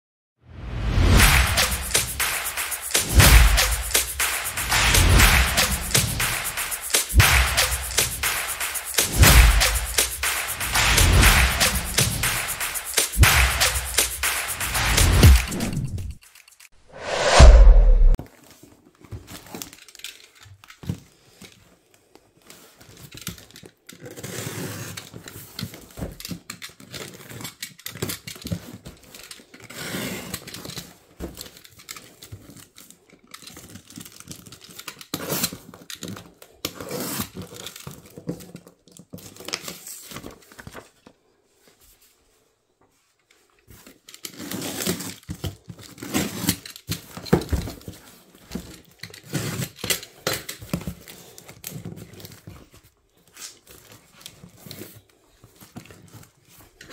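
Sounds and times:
knife slitting packing tape: 0:23.1 - 0:25.7, 0:26.3 - 0:40.8, 0:43.7 - 0:52.4.

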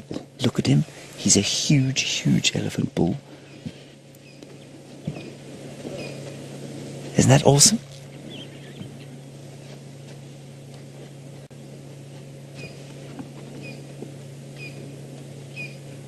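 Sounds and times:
steady low hum: 0:00.0 - 0:16.0
small bird chirping: 0:03.4 - 0:06.3, 0:08.0 - 0:09.4, 0:12.6 - 0:12.8, 0:13.6 - 0:13.9, 0:14.6 - 0:14.8, 0:15.5 - 0:15.9.

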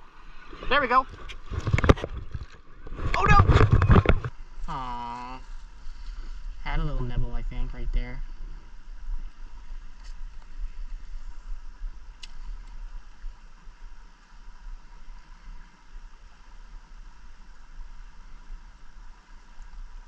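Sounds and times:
wind buffeting microphone: 0:00.0 - 0:04.4
shallow stream rushing: 0:00.0 - 0:20.0.

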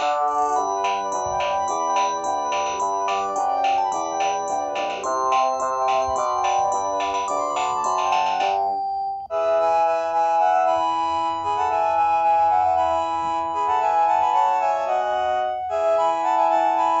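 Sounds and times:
electronic phone ringtone in chords: 0:00.0 - 0:09.8.

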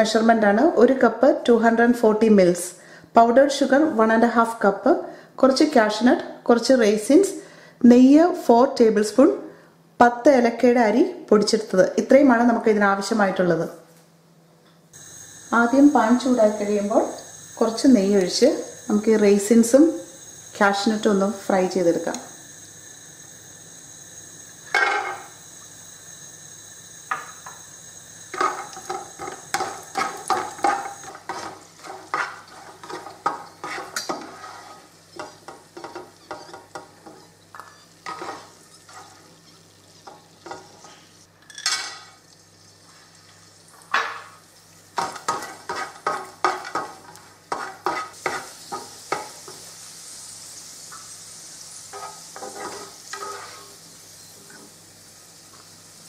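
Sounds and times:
nuts frying in a pan: 0:14.9 - 0:56.0
spatula scraping and tapping pan: 0:28.3 - 0:42.2, 0:45.0 - 0:49.7, 0:51.9 - 0:53.8.

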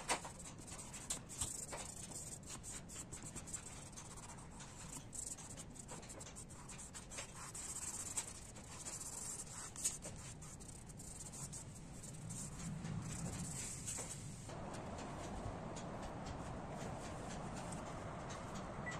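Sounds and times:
fingers rubbing pastel on paper: 0:00.0 - 0:14.2.

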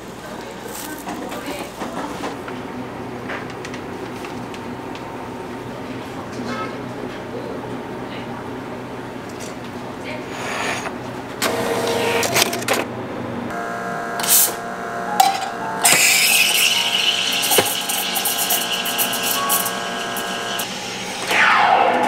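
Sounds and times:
espresso pump humming: 0:13.5 - 0:20.7.

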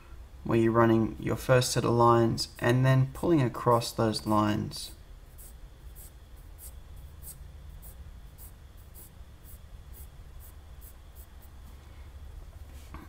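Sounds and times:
pencil scratching on paper: 0:05.3 - 0:11.6.

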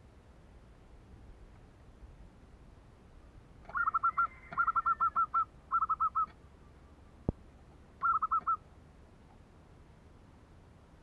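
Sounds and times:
dove stuttering cooing call: 0:03.6 - 0:06.4, 0:08.0 - 0:08.6.

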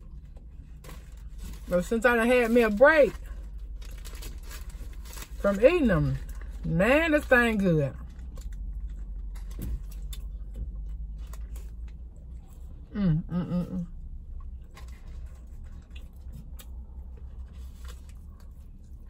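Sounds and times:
low car hum: 0:00.0 - 0:19.0
paper wrapper rustling: 0:02.4 - 0:05.5
person humming: 0:12.9 - 0:13.8
person chewing: 0:13.9 - 0:19.0.

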